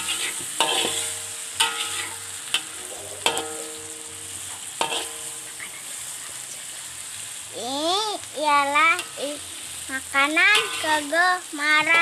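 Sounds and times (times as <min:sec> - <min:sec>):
metal spatula clanking on wok: 0:00.0 - 0:05.5, 0:08.9 - 0:09.3, 0:10.5 - 0:11.1
fish sizzling in hot oil: 0:00.0 - 0:12.0.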